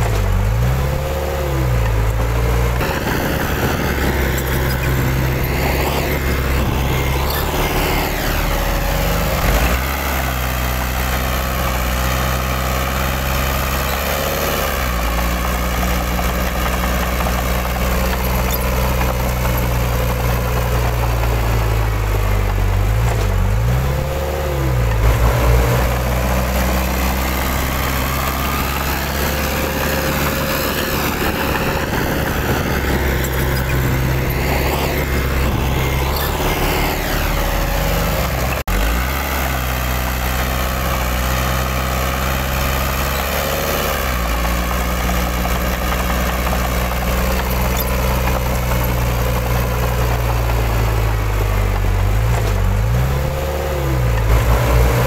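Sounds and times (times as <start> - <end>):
diesel engine throttling: 0.0 - 55.0.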